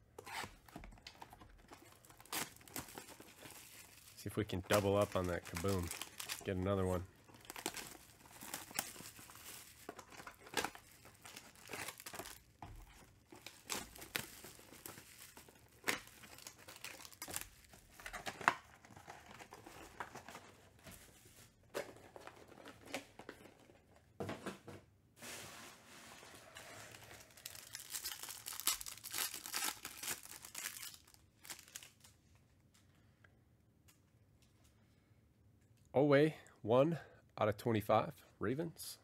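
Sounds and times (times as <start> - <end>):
plastic wrappers crinkling and tearing: 0.2 - 20.5, 26.4 - 32.4.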